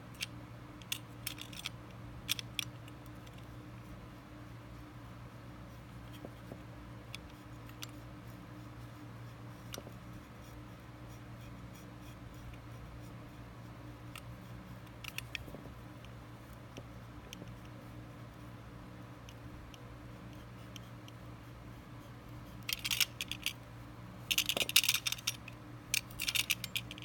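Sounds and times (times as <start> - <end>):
steady low hum: 0.0 - 27.0
small clicks: 14.1 - 17.8, 22.6 - 23.6, 24.3 - 27.0.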